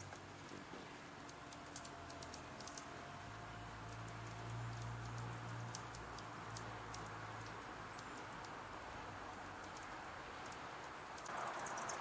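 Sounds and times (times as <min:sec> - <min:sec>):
woodpecker tapping on bark: 0:01.2 - 0:03.0, 0:03.8 - 0:08.6, 0:09.2 - 0:12.0.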